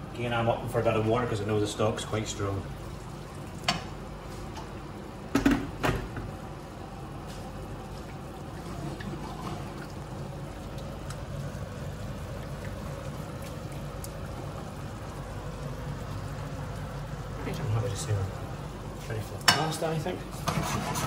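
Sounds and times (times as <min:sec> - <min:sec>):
whisk stirring sauce in metal pan: 0:20.3 - 0:21.0.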